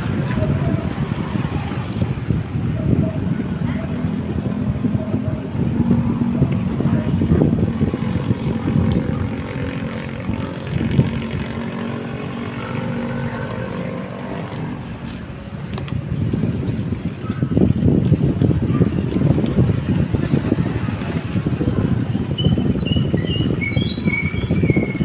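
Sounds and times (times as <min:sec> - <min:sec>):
motorcycle engine passing: 0:00.0 - 0:15.3
bike tyres on concrete: 0:00.0 - 0:25.0
wind rumble: 0:00.0 - 0:25.0.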